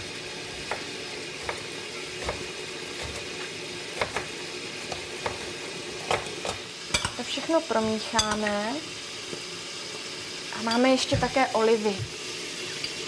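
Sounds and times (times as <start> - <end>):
frying sizzle: 0.0 - 13.0
knife cutting on a cutting board: 0.4 - 6.6.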